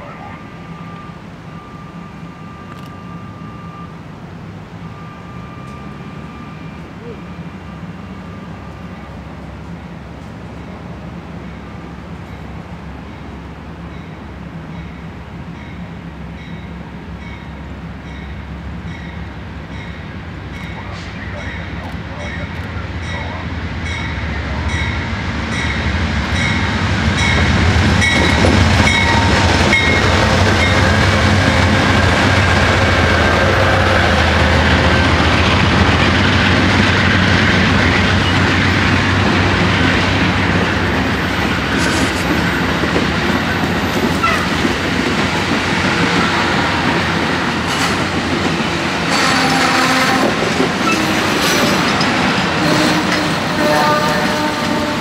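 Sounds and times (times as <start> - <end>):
diesel locomotive engine drone: 0.0 - 55.0
train wheels clattering on rails: 24.0 - 55.0.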